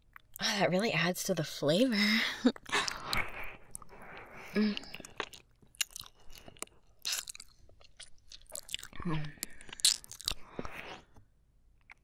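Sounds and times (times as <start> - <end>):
woman humming: 9.0 - 9.4.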